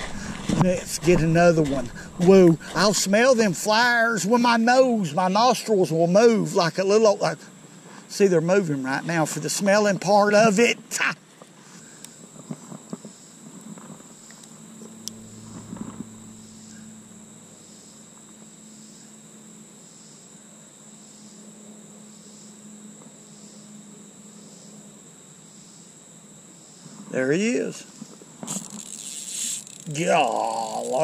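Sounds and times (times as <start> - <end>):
faint low hum: 0.0 - 8.6, 13.4 - 25.9
insects trilling: 0.0 - 31.0.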